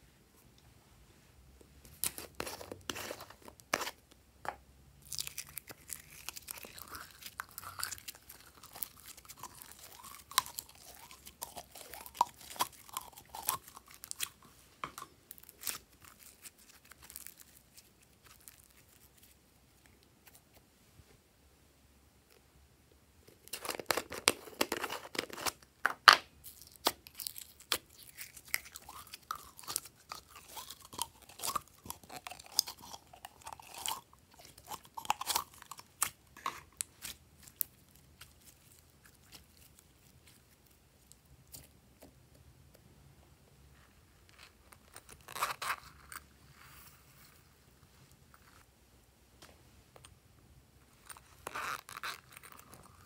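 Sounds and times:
slime crackling and popping: 5.0 - 14.4.

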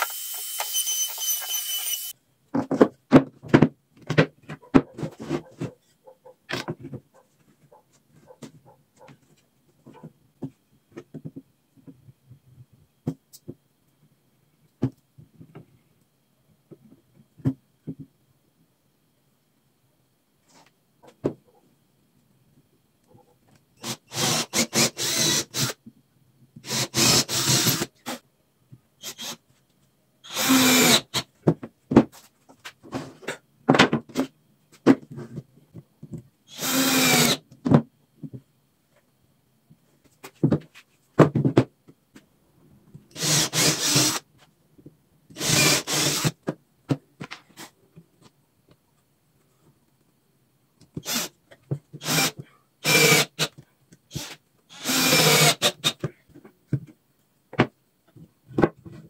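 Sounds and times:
power drill drilling into wood: 0.0 - 2.1, 23.8 - 25.7, 26.6 - 27.9, 30.3 - 31.2, 36.5 - 37.4, 43.1 - 44.2, 45.4 - 46.3, 51.0 - 51.3, 52.0 - 53.5, 54.1 - 56.0.

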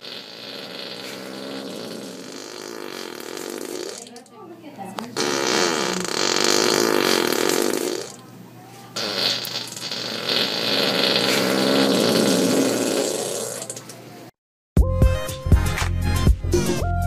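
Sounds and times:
man snoring loudly: 0.0 - 4.0, 5.4 - 8.2, 9.0 - 13.7.

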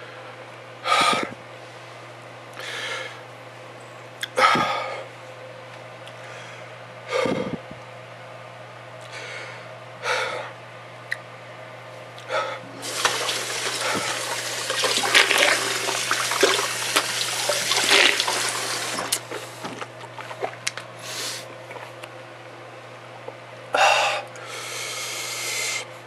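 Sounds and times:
man breathing heavily: 2.6 - 3.2, 4.4 - 5.1, 6.2 - 7.7, 9.1 - 10.6, 12.2 - 12.7, 23.7 - 25.9
rushing splashing liquid: 12.8 - 19.2
water dripping: 12.8 - 19.2.

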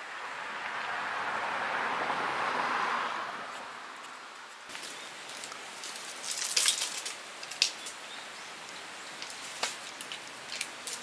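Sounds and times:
rustling scraping sounds: 4.6 - 8.0, 9.2 - 11.0.

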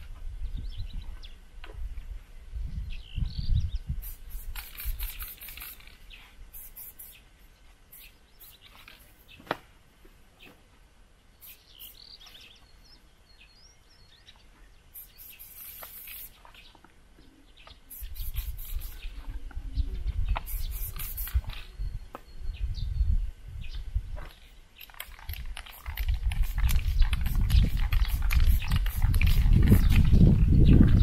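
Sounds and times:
birds chirping: 0.0 - 1.6, 2.4 - 31.0
spray-paint can hissing: 4.0 - 7.2, 7.9 - 8.9, 11.4 - 12.0, 15.0 - 16.4, 17.9 - 19.1, 20.4 - 21.7, 25.0 - 30.2.

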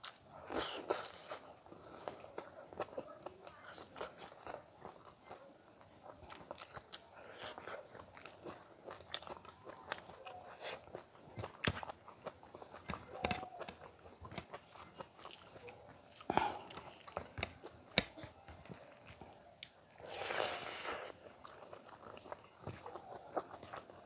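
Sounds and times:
mouth smacks and crunching: 6.0 - 24.0.

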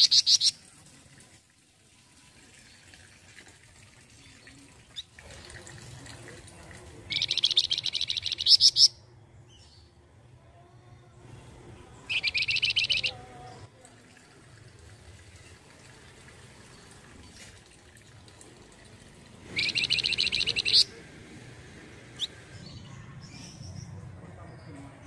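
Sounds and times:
bird singing rapid high notes: 0.0 - 0.6, 7.1 - 9.0, 12.0 - 13.2, 19.5 - 21.0.

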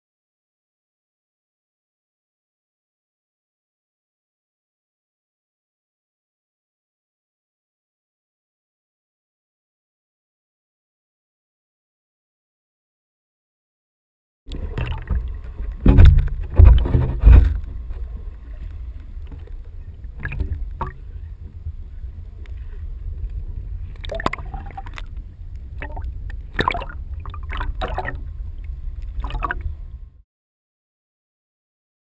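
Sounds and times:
sharp knocks and crackles: 14.5 - 21.0
low underwater rumble: 14.5 - 30.2
loud thuds: 14.8 - 18.0.

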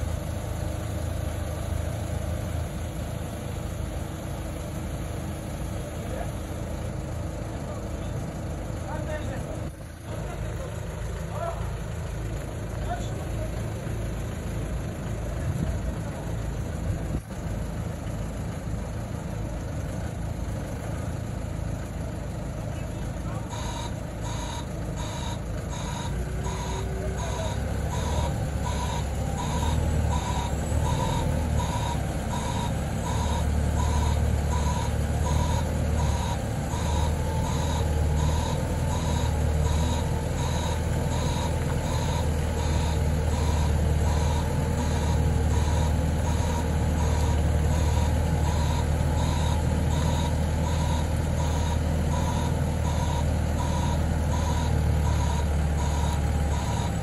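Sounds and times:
forklift engine running under load: 0.0 - 57.0
forklift reversing alarm beeping: 21.8 - 57.0.

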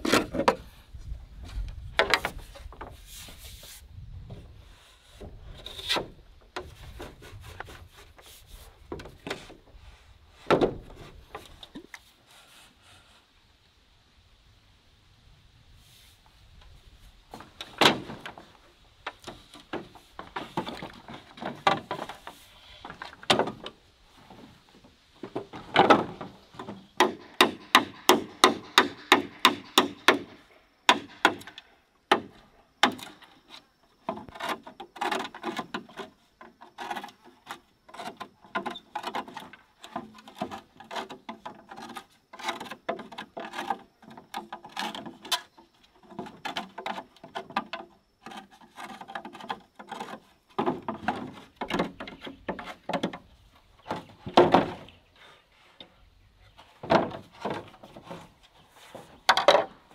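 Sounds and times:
bamboo poles knocking: 17.4 - 24.4, 25.2 - 33.3, 34.0 - 55.0, 56.8 - 59.8.

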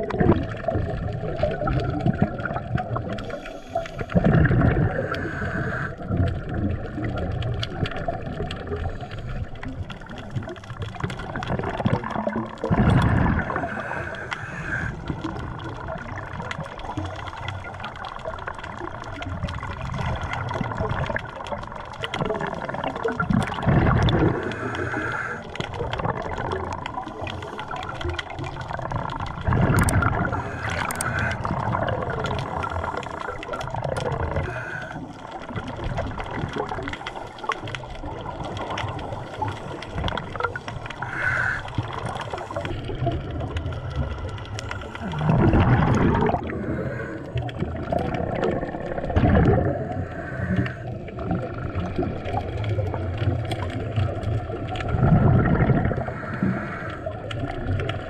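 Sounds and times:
bubbles gurgling underwater: 0.0 - 58.0
underwater hiss: 3.1 - 6.2, 13.2 - 15.1, 24.2 - 25.7, 29.7 - 36.0, 36.9 - 48.9, 49.5 - 51.9, 55.5 - 57.4
diver breathing through regulator: 3.2 - 6.2, 12.7 - 15.2, 23.9 - 25.8, 29.5 - 35.5, 36.9 - 43.2, 44.1 - 48.4, 49.5 - 51.4, 55.4 - 57.4.

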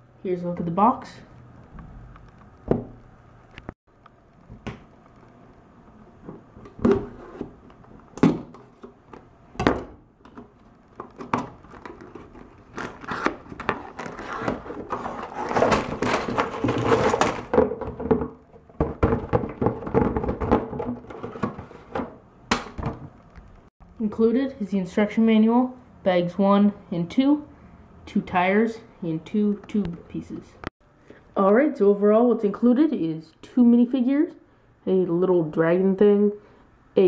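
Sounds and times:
cardboard tearing and rustling: 11.6 - 17.5.

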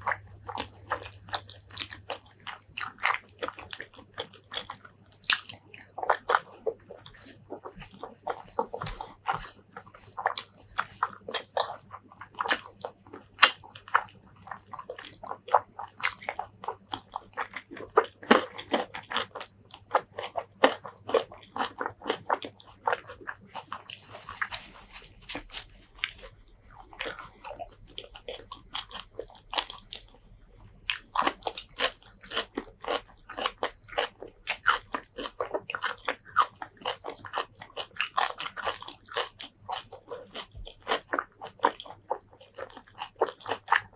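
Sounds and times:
person chewing with crunches: 0.0 - 43.9
tissue rustling: 24.0 - 26.4.

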